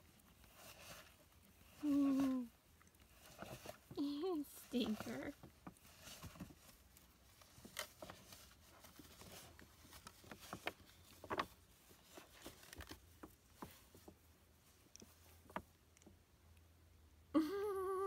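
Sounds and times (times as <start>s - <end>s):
paper bag rustling and clicking: 4.6s - 14.2s.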